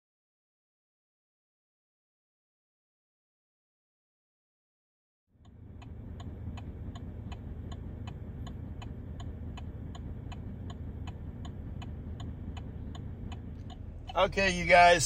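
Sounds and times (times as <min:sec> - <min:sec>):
engine idling: 0:05.3 - 0:15.0
turn signal ticking: 0:05.4 - 0:15.0.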